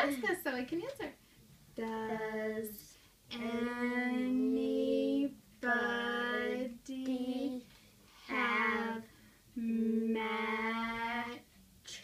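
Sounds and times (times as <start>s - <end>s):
child speaking slowly sing-song: 8.3s - 12.0s.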